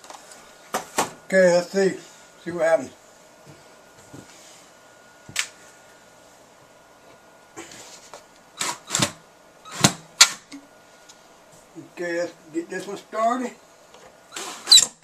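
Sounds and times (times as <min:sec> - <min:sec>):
drill handling noise: 0:08.6 - 0:10.6.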